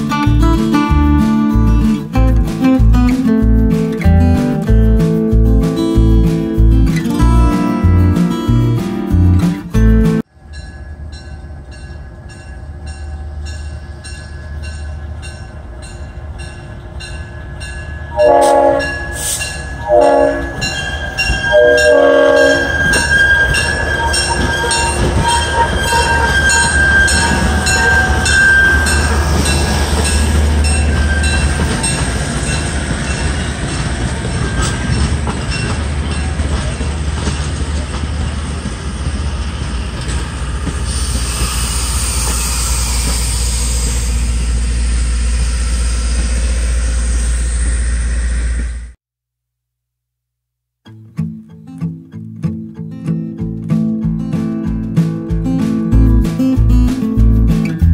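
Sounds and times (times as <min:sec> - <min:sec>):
locomotive engine rumbling: 0:00.0 - 0:49.0, 0:54.1 - 0:57.9
train wheels squealing: 0:10.4 - 0:49.0
bell ringing: 0:10.5 - 0:36.9
locomotive horn blasts: 0:18.1 - 0:29.6.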